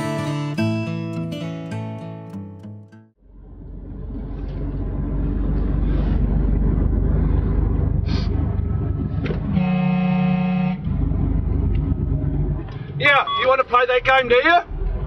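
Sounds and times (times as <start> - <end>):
truck engine running: 3.2 - 15.0
truck horn blast: 9.4 - 11.0.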